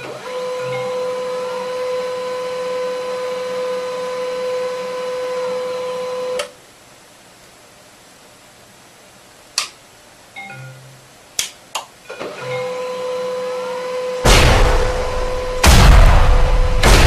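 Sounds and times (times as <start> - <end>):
printer motor whine: 0.0 - 6.5, 12.2 - 14.3.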